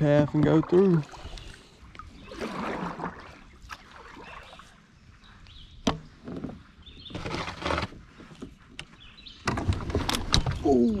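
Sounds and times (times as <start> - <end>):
kayak paddle strokes in water: 0.4 - 4.8.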